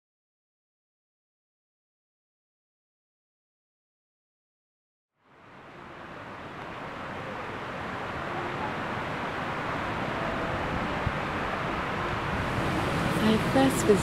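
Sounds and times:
hiss-like hum: 5.3 - 14.0.

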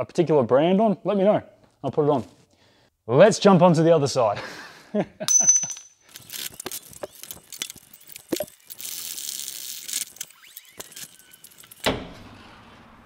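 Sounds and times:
metal tools clicking and scraping: 5.3 - 8.8.

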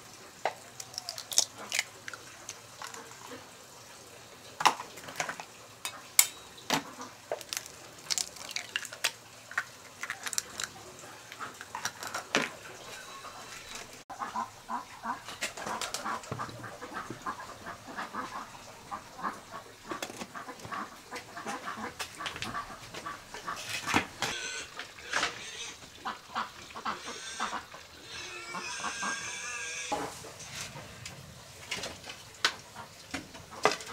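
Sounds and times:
steel pot and lid clinking: 4.6 - 6.5
chickens clucking: 10.0 - 31.0.

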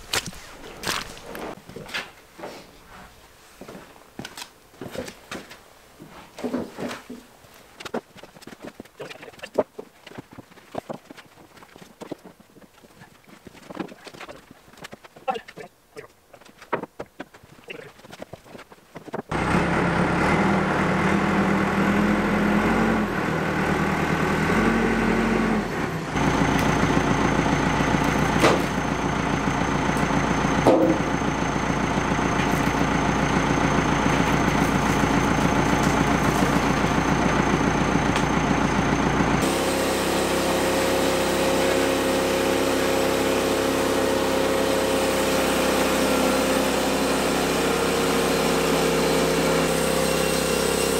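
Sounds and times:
tractor engine running: 7.1 - 50.9
sawmill engine idling: 19.3 - 50.9.

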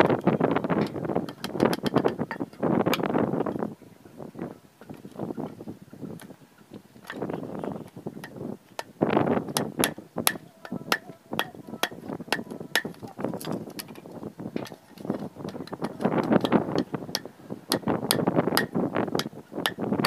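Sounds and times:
machete striking bamboo: 9.5 - 14.0, 15.5 - 19.8.

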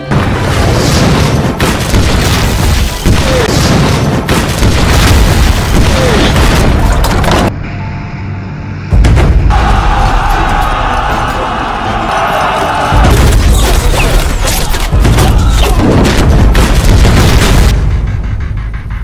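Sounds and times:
explosions with deep rumble: 0.1 - 7.6, 8.9 - 10.2, 12.9 - 18.2.

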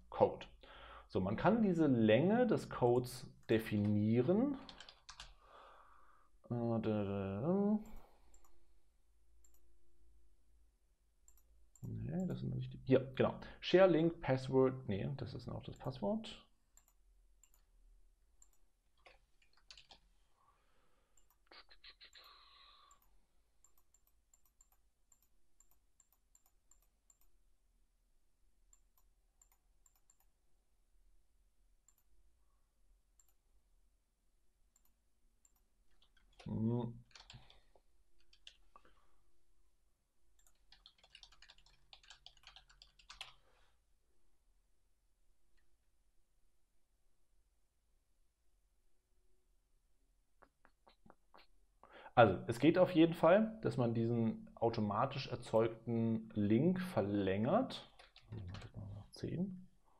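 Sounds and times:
faint keyboard typing: 3.4 - 5.4, 7.8 - 8.6, 11.2 - 12.5, 18.4 - 20.1, 21.1 - 27.4, 28.7 - 30.4, 34.7 - 39.0, 40.3 - 43.5, 57.7 - 58.9
keyboard typing: 4.6 - 5.4, 18.4 - 20.1, 34.8 - 37.6, 38.2 - 38.6, 40.4 - 43.4, 57.8 - 58.8.

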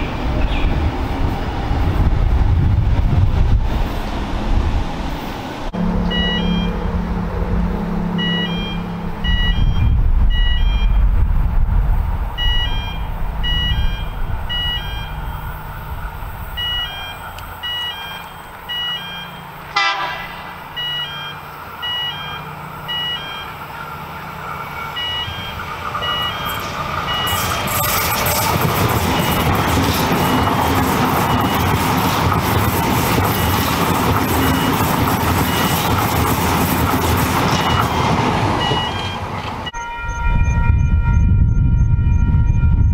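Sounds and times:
electric train rushing: 0.0 - 42.9
short high electronic beeps: 25.0 - 28.5.

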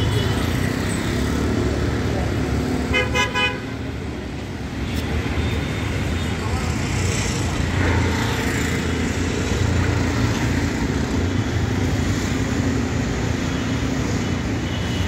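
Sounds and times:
road traffic rumble: 0.0 - 15.0.

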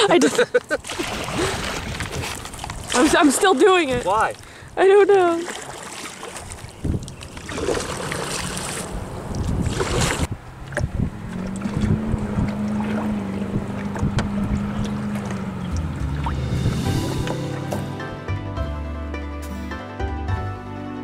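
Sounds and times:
canoe paddle splashing: 0.0 - 17.9
wind buffeting microphone: 1.1 - 5.4, 6.2 - 17.3
low drone: 11.6 - 18.8.

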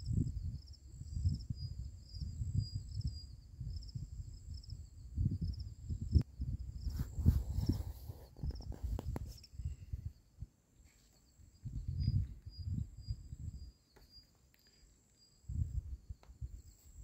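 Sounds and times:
high insect drone: 0.0 - 10.4
wind rumbling on microphone: 0.0 - 10.6, 11.4 - 13.8, 15.4 - 17.0.

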